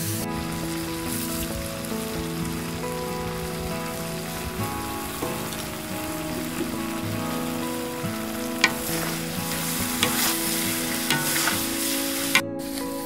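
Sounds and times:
food sizzling in a wok: 0.0s - 13.0s
spatula clanking against wok: 8.6s - 12.4s
spatula scraping: 8.6s - 12.4s.

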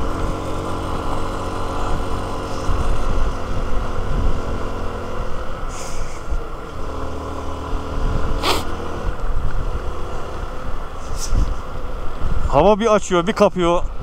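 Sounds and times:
motorcycle engine running: 0.0s - 14.0s
wind rumble on microphone: 1.8s - 6.9s, 7.5s - 12.9s
brief hiss: 8.4s - 8.7s.

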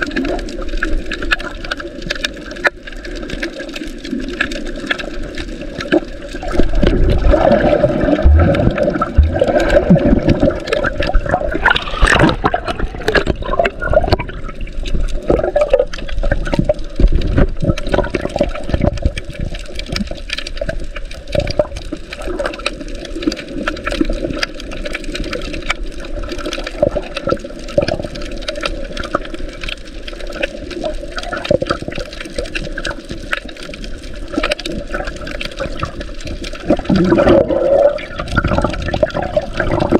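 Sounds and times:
muffled underwater sloshing and bubbling: 0.0s - 39.9s
water surge: 6.4s - 19.0s, 36.6s - 39.9s.

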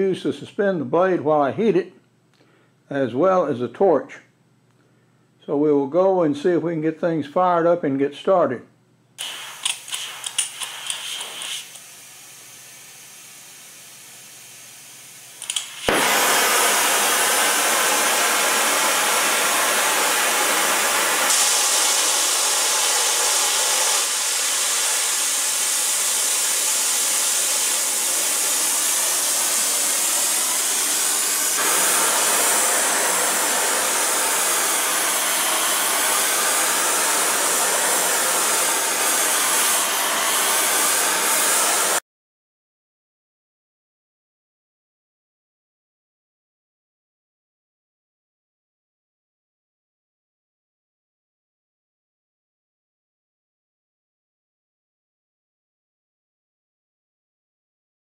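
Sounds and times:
torch igniter clicks: 9.2s - 11.8s, 15.4s - 16.3s
torch flame hissing: 9.2s - 42.0s.

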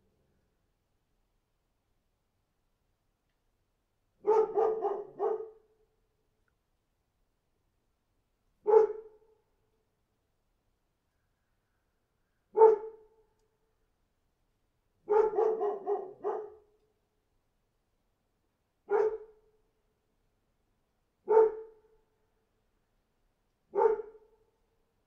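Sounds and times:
dog barking: 4.2s - 5.7s, 8.6s - 9.2s, 12.5s - 13.1s, 15.1s - 16.7s, 18.9s - 19.4s, 21.3s - 21.8s, 23.7s - 24.3s.

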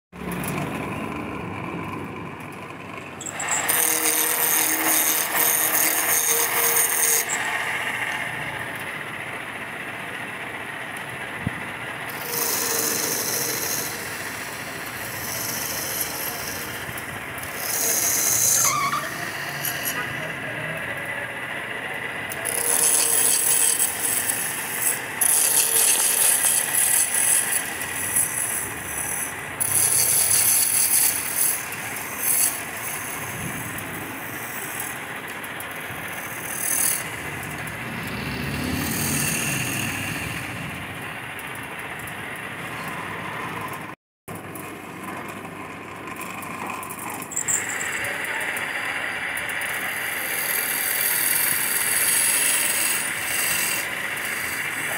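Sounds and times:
wood lathe humming: 0.4s - 42.5s, 46.0s - 54.9s
turning tool rasping wood: 3.2s - 40.9s, 46.3s - 54.9s.

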